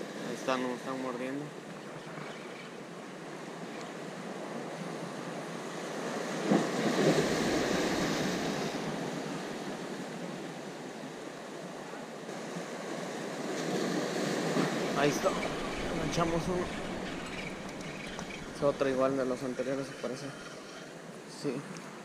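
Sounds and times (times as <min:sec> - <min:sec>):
sea waves crashing on concrete blocks: 0:05.7 - 0:10.2, 0:12.2 - 0:21.1.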